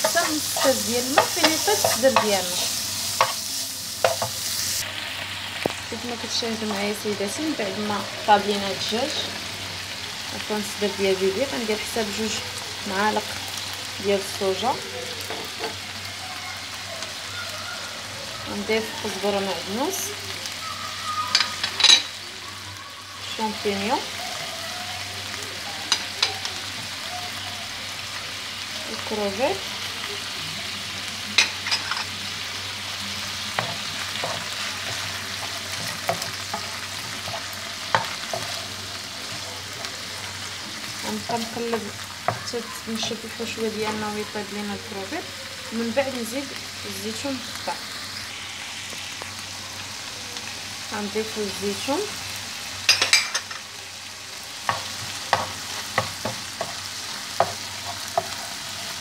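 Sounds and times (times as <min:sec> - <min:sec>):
spatula scraping and knocking pan: 0:00.0 - 0:04.5, 0:54.6 - 0:58.9
food sizzling in oil: 0:00.0 - 0:59.0.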